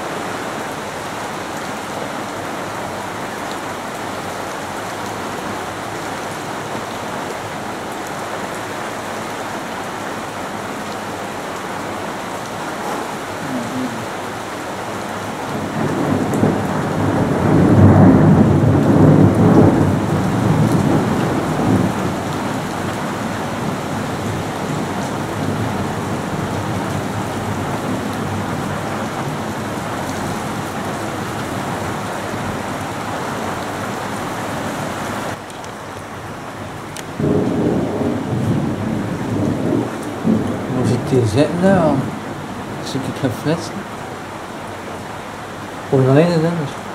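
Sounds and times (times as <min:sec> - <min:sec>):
heavy rain: 0:00.0 - 0:46.9
thunder rumbling: 0:15.5 - 0:32.7, 0:37.2 - 0:42.9.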